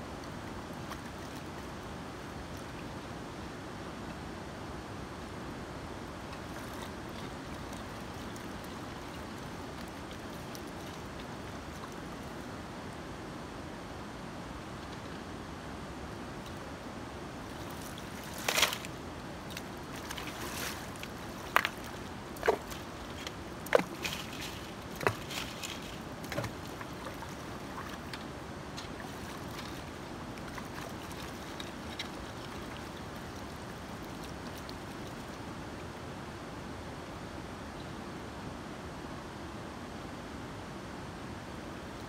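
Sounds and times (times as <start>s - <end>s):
shallow river running: 0.0s - 42.0s
shovel digging gravel in water: 19.5s - 28.2s.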